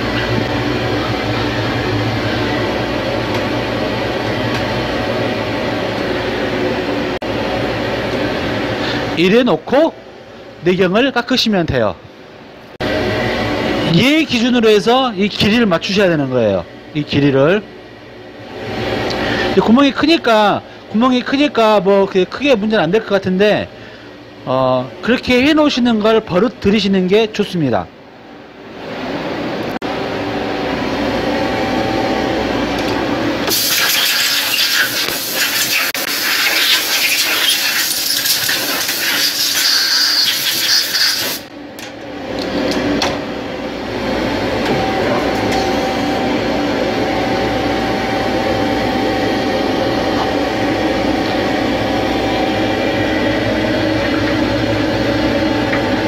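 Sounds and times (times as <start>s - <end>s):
lathe machine hum: 0.0s - 9.2s, 41.4s - 56.0s
loud hiss: 33.5s - 41.5s.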